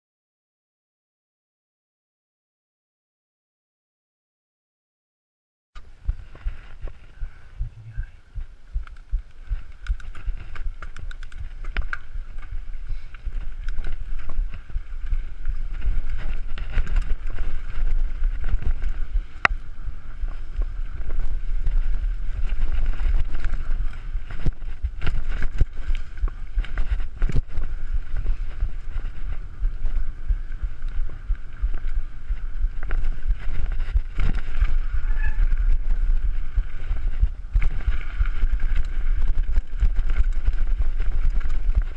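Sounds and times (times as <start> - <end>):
wind rumble on microphone: 5.8 - 41.9
bike clicks knocks and rattles: 8.8 - 41.9.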